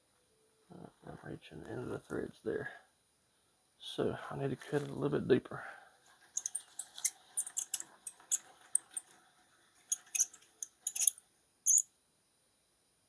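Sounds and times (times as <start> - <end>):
metallic clicks of small tools: 6.4 - 9.1, 9.9 - 11.9.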